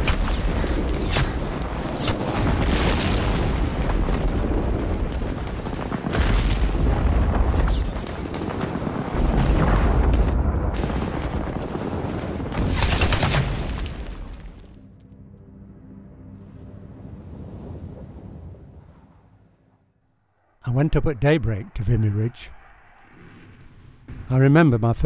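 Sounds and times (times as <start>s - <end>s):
heavy artillery booms: 0.0s - 14.5s
sharp crackles: 0.0s - 15.1s.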